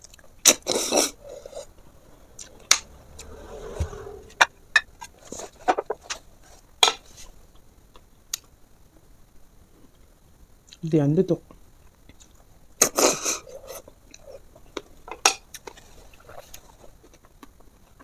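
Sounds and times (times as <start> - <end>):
short rubbing noise: 2.7 - 5.5.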